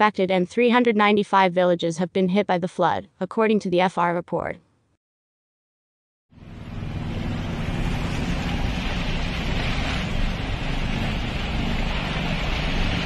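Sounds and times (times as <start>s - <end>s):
car driving low rumble: 6.4s - 13.0s
floodwater rushing and splashing: 6.5s - 13.0s.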